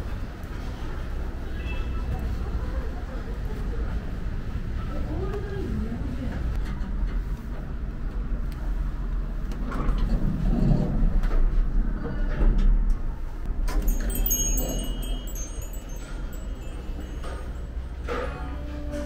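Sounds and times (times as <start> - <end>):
elevator rumble: 9.8 - 19.0
high-pitched electronic chime tune: 13.8 - 18.0.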